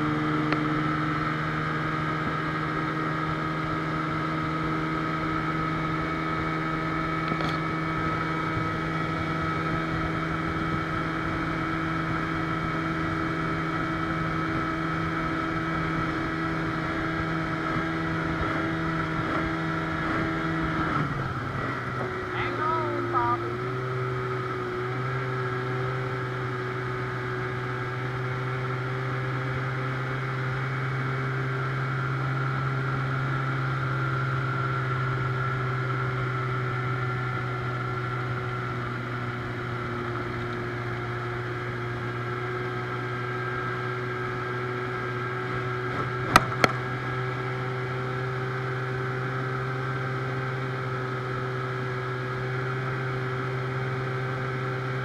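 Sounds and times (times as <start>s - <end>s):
outboard motor droning: 0.0s - 55.0s.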